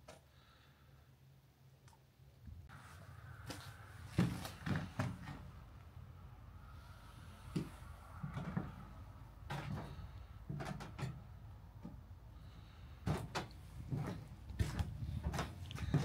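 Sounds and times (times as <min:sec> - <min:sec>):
footsteps on wooden decking: 0:13.0 - 0:16.0.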